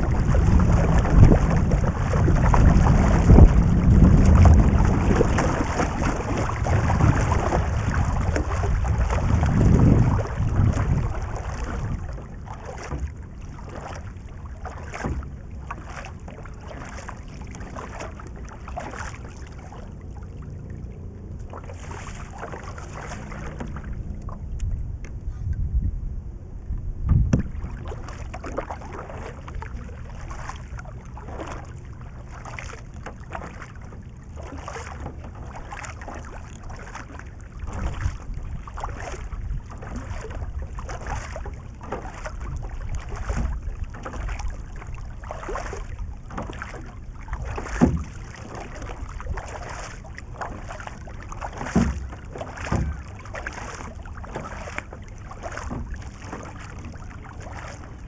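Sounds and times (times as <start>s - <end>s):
kayak paddle splashing water: 0.0s - 24.8s, 27.1s - 58.0s
low thumps: 26.8s - 27.7s.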